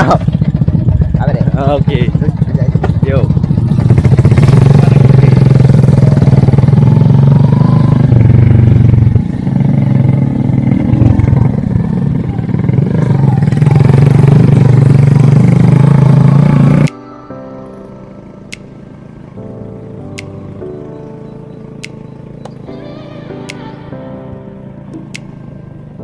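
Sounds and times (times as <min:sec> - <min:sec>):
motorcycle engine running: 0:00.0 - 0:17.0, 0:17.8 - 0:22.7, 0:24.6 - 0:26.0.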